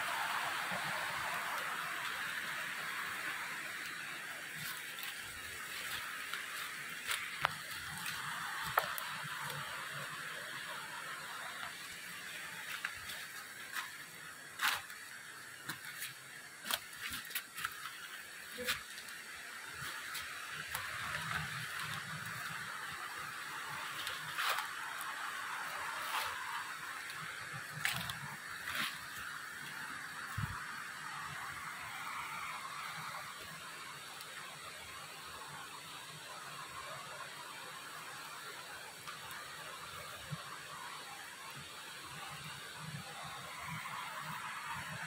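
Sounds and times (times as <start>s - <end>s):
forest background hiss: 0.0s - 45.0s
footsteps on leaf litter: 4.6s - 9.1s, 27.8s - 29.8s.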